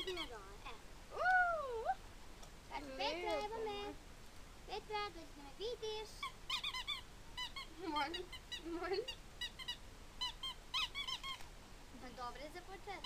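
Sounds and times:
small dog whining: 6.2s - 11.4s.

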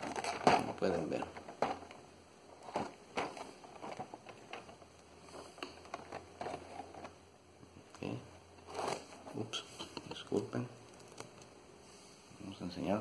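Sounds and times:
plastic packaging clicks and crinkles: 0.0s - 7.2s, 9.8s - 11.5s
plastic packaging rustle: 0.0s - 7.2s, 7.9s - 11.5s.

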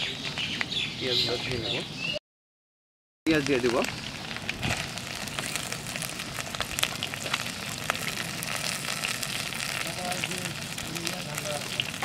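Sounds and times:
sharp crackles and pops: 0.1s - 0.8s, 3.3s - 12.0s
onions sizzling in oil: 3.3s - 12.0s.

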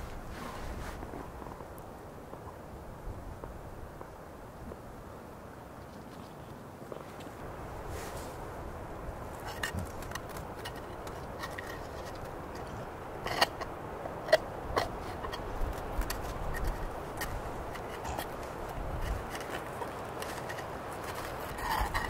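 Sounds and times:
dog chewing wooden stick: 9.2s - 22.0s
stick dragging on icy snow: 9.3s - 22.0s.

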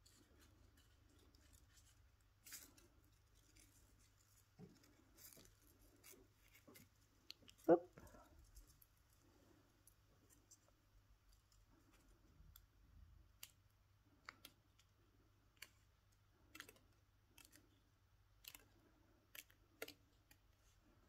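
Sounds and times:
faint clicks of wire twisting: 11.3s - 20.6s.

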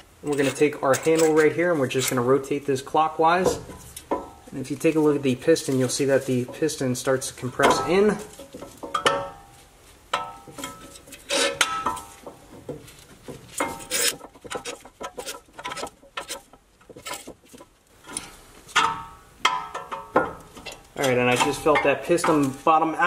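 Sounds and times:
ringing metal clanks: 7.6s - 9.6s, 10.2s - 12.3s, 18.0s - 22.8s.

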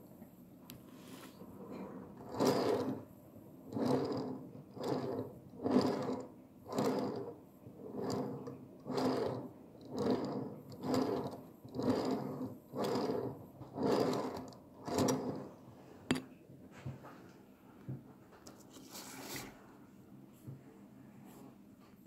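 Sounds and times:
metal wheels running on rails: 2.2s - 3.0s, 3.7s - 15.5s.

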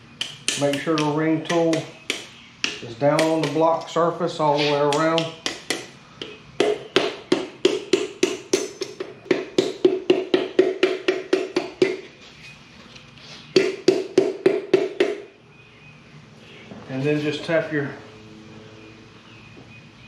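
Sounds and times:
hammer tapping metal: 0.2s - 4.0s, 4.6s - 12.0s.

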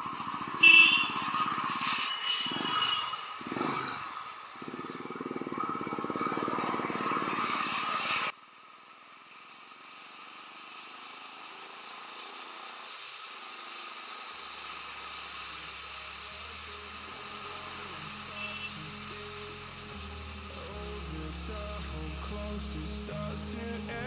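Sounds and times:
motorcycle engine running: 0.0s - 8.3s
steady hiss: 8.5s - 24.0s
low hum: 12.4s - 24.0s.

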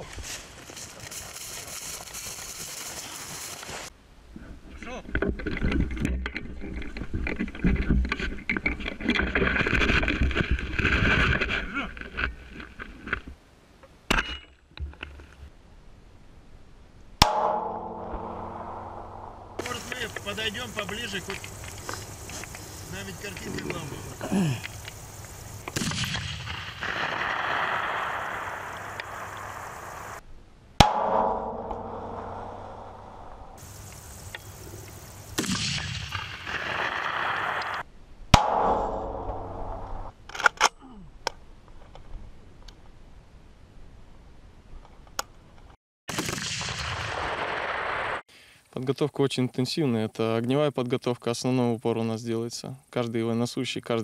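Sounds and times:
rifle shot: 17.2s - 20.0s, 25.7s - 29.6s, 35.4s - 40.0s, 46.1s - 48.2s.

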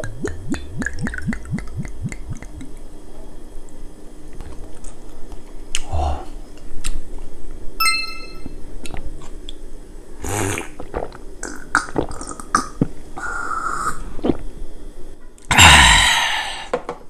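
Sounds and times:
mouth and throat noises: 0.0s - 2.8s, 10.2s - 14.5s
person sipping and swallowing: 0.0s - 2.8s, 10.2s - 13.0s, 13.6s - 14.5s
loud breathy exhale: 15.5s - 16.7s.

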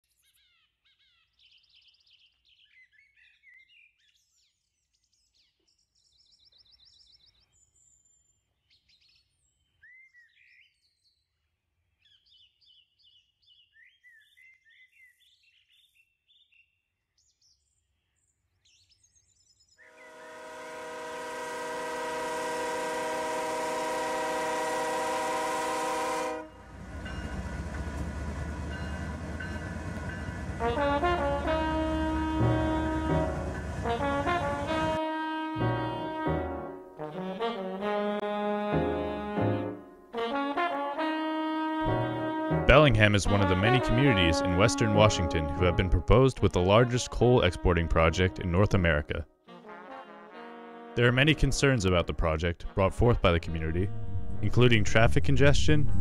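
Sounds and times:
locomotive air horn blast: 19.9s - 27.1s, 30.4s - 46.1s, 49.5s - 51.5s, 53.5s - 56.0s
locomotive engine rumble: 20.0s - 35.0s, 53.5s - 56.0s
birds chirping: 26.6s - 35.0s.

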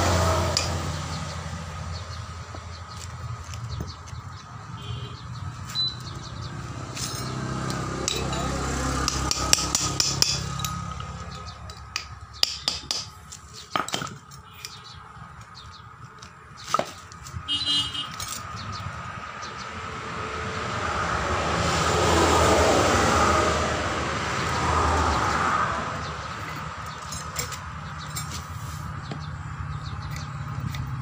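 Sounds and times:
metal clinks of hand tools: 7.0s - 15.0s, 18.0s - 18.7s, 26.4s - 28.5s.

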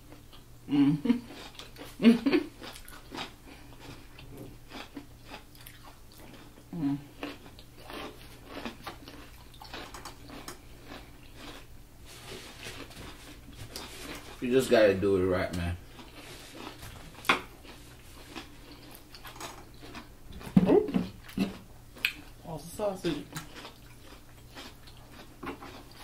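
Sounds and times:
hum of approval: 0.7s - 1.2s
chewing with wet mouth smacks: 1.3s - 11.7s, 15.9s - 22.4s, 23.2s - 26.0s.

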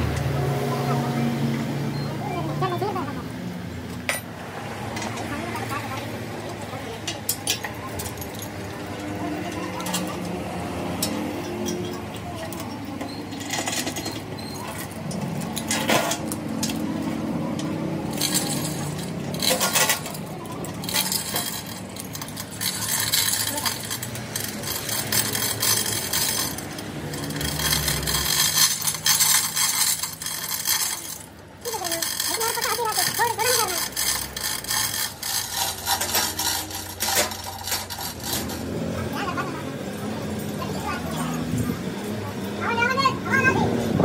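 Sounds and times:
steel chains clinking and rattling: 7.0s - 10.4s, 11.0s - 39.1s.

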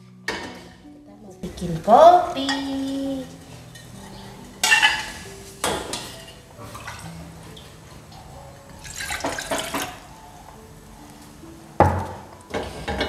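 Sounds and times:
metal cookware knocking: 4.6s - 7.1s
saucepan clinks and scrapes: 4.6s - 7.1s.

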